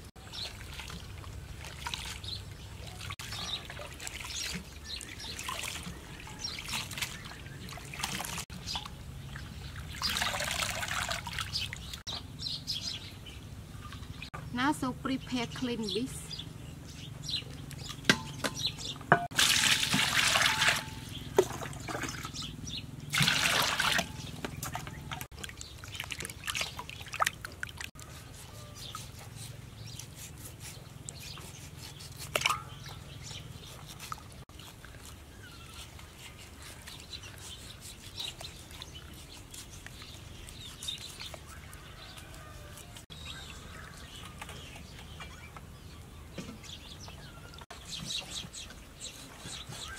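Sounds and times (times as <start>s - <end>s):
water splashing in a steel bowl: 0.2s - 12.0s, 19.2s - 27.9s, 32.3s - 33.4s
knocks against a bowl: 18.1s - 19.3s.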